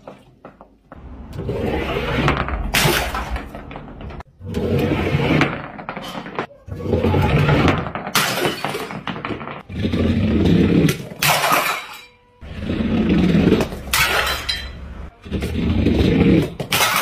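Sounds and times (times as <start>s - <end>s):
low rolling rumble: 0.9s - 4.4s
glass jars shattering: 11.2s - 12.2s, 13.9s - 14.9s.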